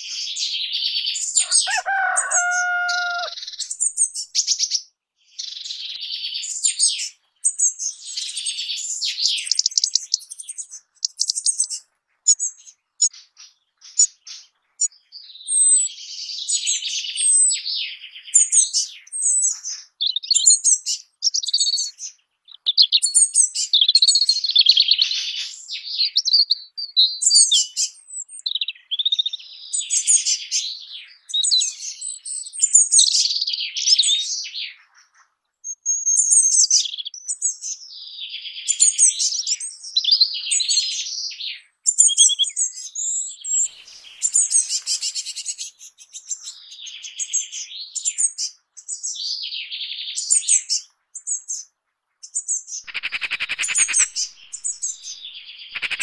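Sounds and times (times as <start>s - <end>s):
songbird warbling: 1.4s - 3.8s, 52.8s - 56.0s.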